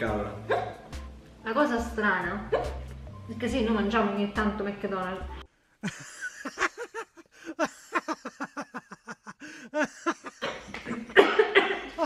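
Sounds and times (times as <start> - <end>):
woman giggling: 5.8 - 12.0.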